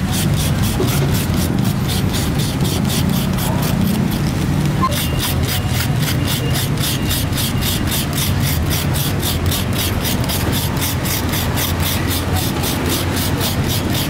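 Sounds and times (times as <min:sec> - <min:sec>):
scraper rasping coconut: 0:00.0 - 0:14.0.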